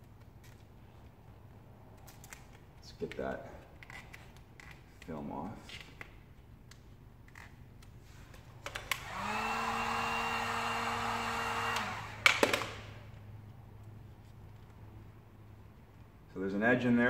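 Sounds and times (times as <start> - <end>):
heat gun blowing with fan whine: 8.6 - 13.1.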